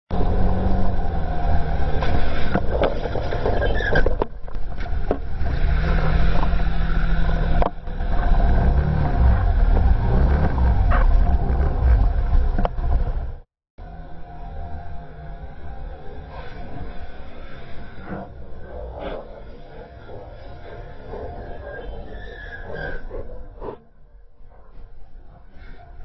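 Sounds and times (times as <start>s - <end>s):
motorbike engine revving: 5.0s - 17.6s.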